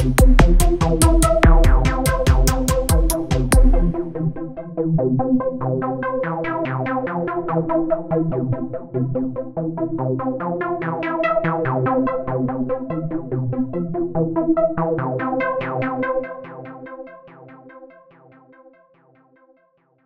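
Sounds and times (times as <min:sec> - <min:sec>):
synth bass line: 0:00.0 - 0:04.8
pulsing synthesizer notes: 0:00.0 - 0:18.5.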